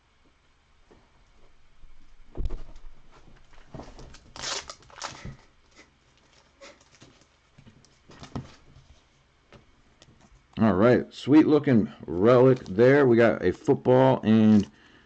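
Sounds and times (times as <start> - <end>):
plastic sleeve rustling and clicking: 3.3 - 8.9.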